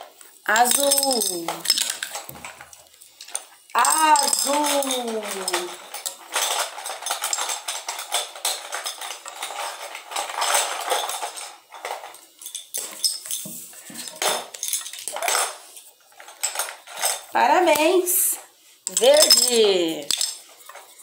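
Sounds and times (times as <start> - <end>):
plastic pieces clicking on stone: 0.5 - 11.5, 18.9 - 20.5.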